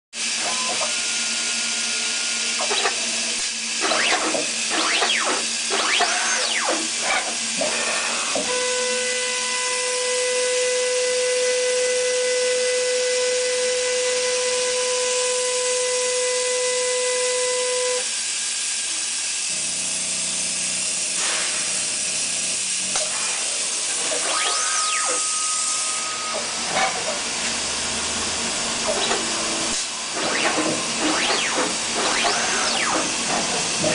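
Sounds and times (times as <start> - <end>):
motor whine: 0.4 - 9.7, 21.9 - 33.9
printer machine hissing: 23.1 - 33.9.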